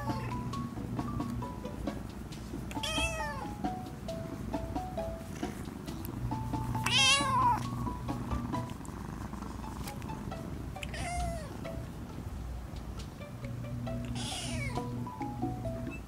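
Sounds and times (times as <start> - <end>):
soft background music: 0.0 - 16.0
kitten mewing: 2.7 - 3.6, 5.4 - 11.7, 14.0 - 15.1.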